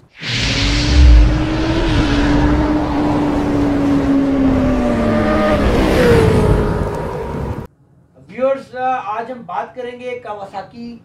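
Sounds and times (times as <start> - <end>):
deep boom: 0.2 - 5.2
motorcycle engine revving: 0.6 - 7.7.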